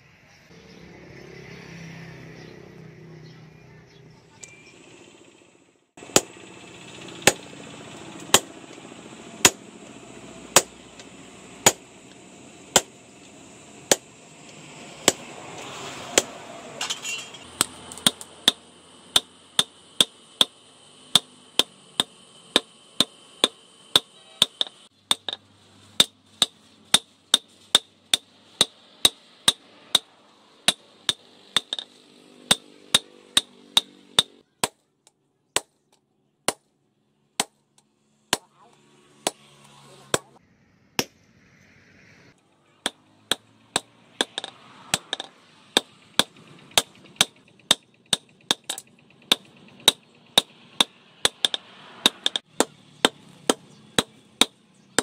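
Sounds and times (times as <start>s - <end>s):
hammer striking steel on anvil: 6.0s - 6.4s, 7.2s - 7.5s, 8.2s - 8.6s, 9.4s - 9.7s, 10.5s - 11.9s, 12.7s - 13.0s, 13.9s - 14.2s, 15.0s - 25.4s, 26.0s - 34.8s, 42.8s - 55.0s.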